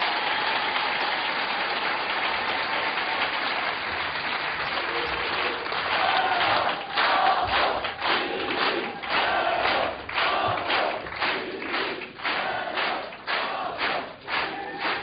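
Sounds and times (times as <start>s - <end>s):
audience applauding: 0.0s - 15.0s
crowd shouting or chanting: 5.9s - 11.0s, 12.3s - 15.0s.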